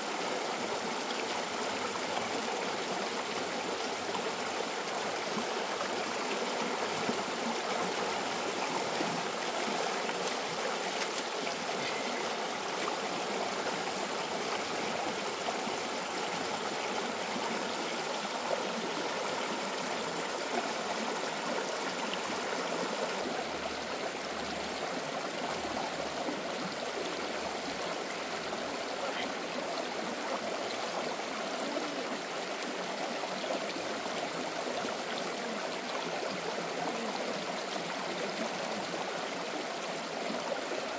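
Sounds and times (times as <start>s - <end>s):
stream water flowing: 0.0s - 40.9s.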